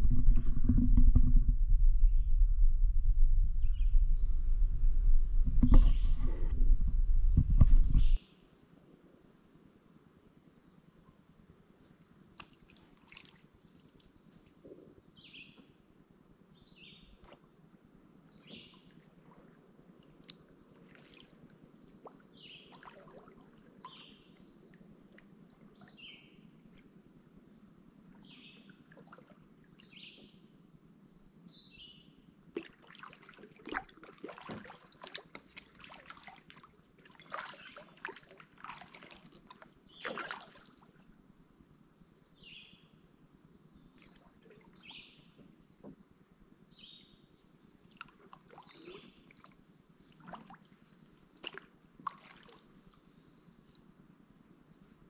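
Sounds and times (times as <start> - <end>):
songbird singing: 2.0 - 8.4, 13.4 - 15.8, 18.2 - 19.0, 20.2 - 24.8, 25.7 - 27.0, 29.6 - 32.2, 39.8 - 46.0, 46.6 - 47.8, 48.6 - 49.5
paddle splashing water: 3.7 - 8.2, 12.4 - 14.4, 18.4 - 26.2, 28.2 - 30.4, 32.5 - 41.2, 47.8 - 53.9.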